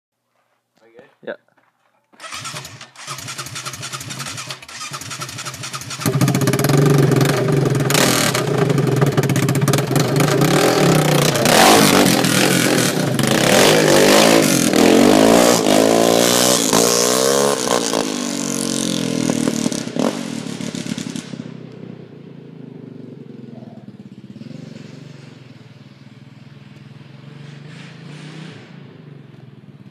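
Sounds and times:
quad engine revving: 2.2 - 21.6, 23.5 - 25.6, 27.1 - 29.1.

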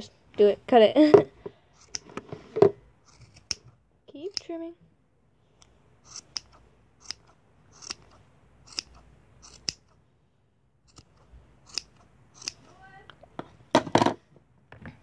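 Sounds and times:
scissors snipping yarn: 1.8 - 2.1, 3.0 - 4.6, 6.0 - 10.0, 10.9 - 12.9.

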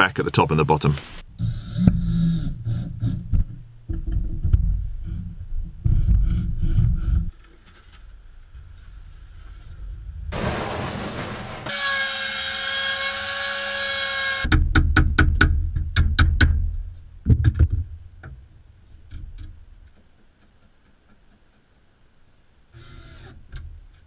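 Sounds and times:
low rumble: 8.1 - 12.0.

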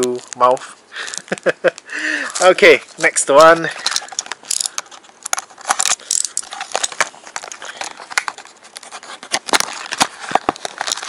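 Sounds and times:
cardboard and plastic bag crinkling: 0.0 - 11.0.

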